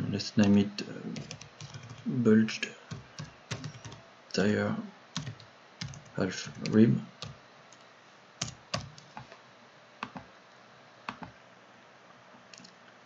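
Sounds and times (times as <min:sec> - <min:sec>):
keyboard and mouse clicks: 0:01.2 - 0:02.1, 0:03.2 - 0:04.0, 0:10.0 - 0:10.3, 0:11.1 - 0:11.4, 0:12.5 - 0:12.8.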